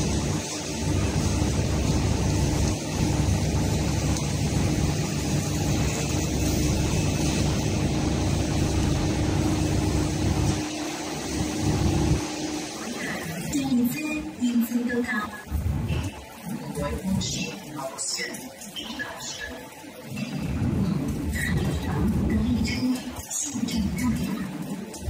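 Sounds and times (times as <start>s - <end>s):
hiss: 0.0s - 13.6s
low mechanical rumble and hum: 0.0s - 14.6s, 15.3s - 17.2s, 20.1s - 25.0s.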